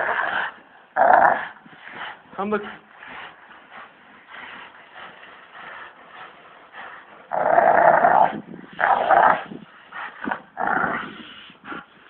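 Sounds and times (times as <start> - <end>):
puppies growling: 2.8 - 11.2.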